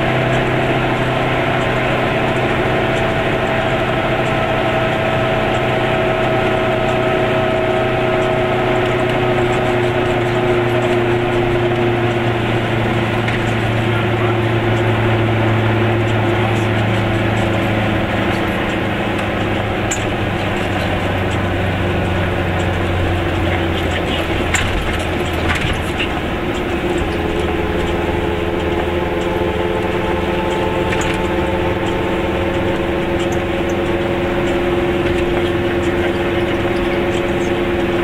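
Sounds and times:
two-stroke engine running: 0.0s - 38.0s
tyre noise on wet road: 0.0s - 38.0s.

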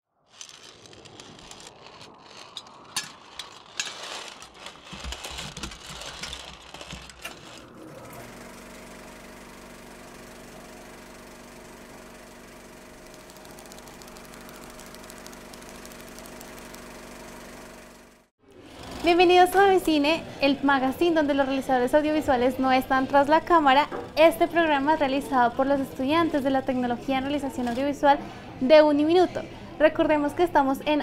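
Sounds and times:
film projector running: 6.2s - 19.1s.

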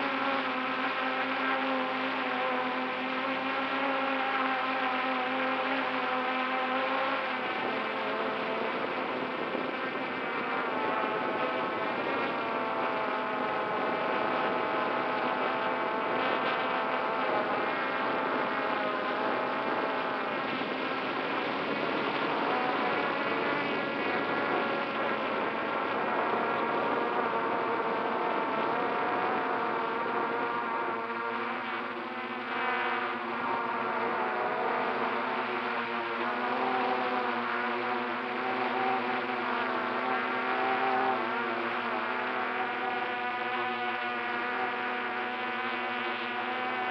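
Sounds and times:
drone propellers buzzing: 0.0s - 46.9s.

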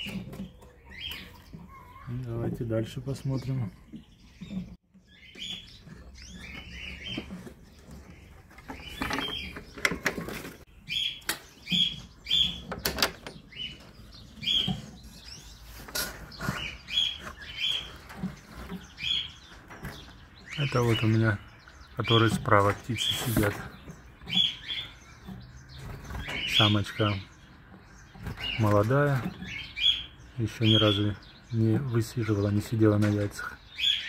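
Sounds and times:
canaries chirping: 0.0s - 34.0s
sharp clicks and knocks: 5.8s - 15.0s.

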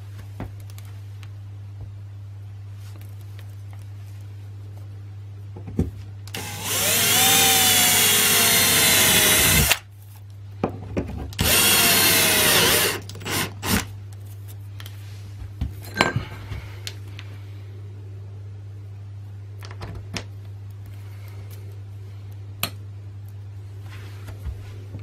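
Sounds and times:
cordless drill whining through plastic: 6.3s - 9.8s, 11.4s - 13.9s.

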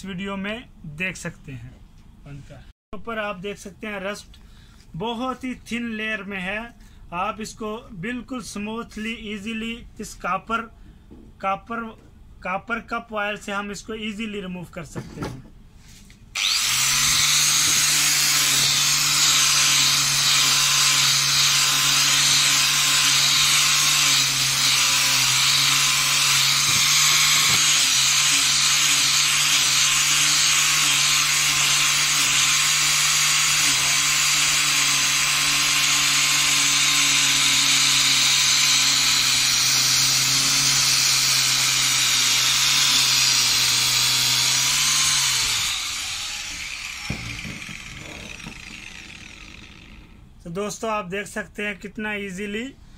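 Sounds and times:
grinder motor winding down: 16.4s - 50.3s.

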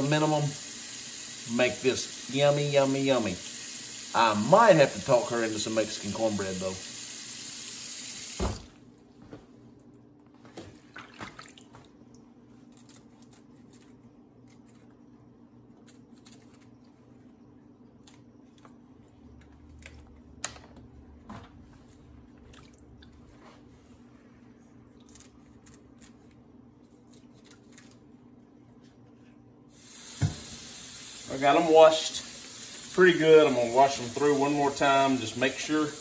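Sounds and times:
faucet running into sink: 0.0s - 8.7s, 29.8s - 36.0s
water splashes and drips: 10.8s - 12.2s.

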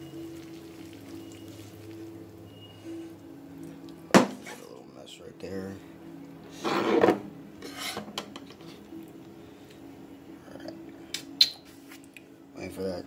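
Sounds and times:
faint steady hum: 8.5s - 11.3s.

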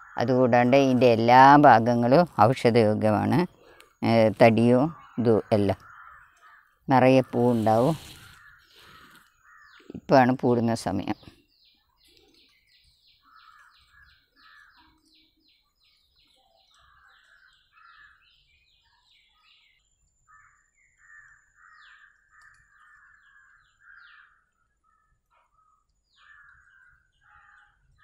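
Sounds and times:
small bird chirping: 2.2s - 28.0s
crows cawing: 5.8s - 6.8s, 8.1s - 9.8s, 13.2s - 15.0s, 16.8s - 18.2s, 20.3s - 25.0s, 26.2s - 27.8s.

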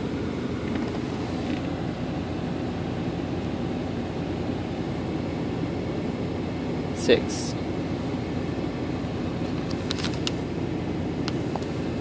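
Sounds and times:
car cabin hum: 0.0s - 12.0s
paper rustling: 9.7s - 10.4s.

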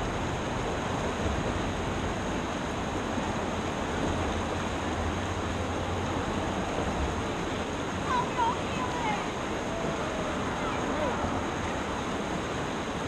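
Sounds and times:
whitewater rushing: 0.0s - 13.0s.

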